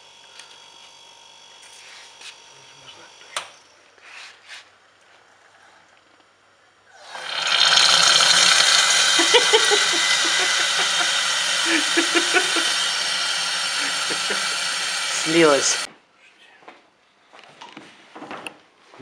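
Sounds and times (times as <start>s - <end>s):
oil gurgling through hose: 6.9s - 15.9s
extraction pump motor running: 7.0s - 15.9s.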